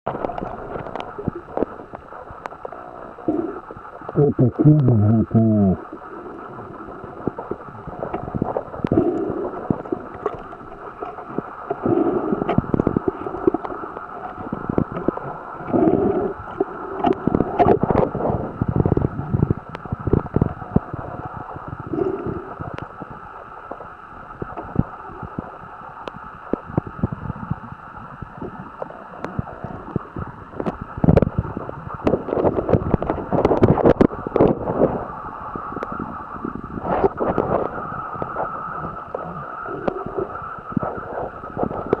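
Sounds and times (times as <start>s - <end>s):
water gurgling: 0.1s - 42.0s
muffled underwater knocks and bumps: 32.0s - 34.8s.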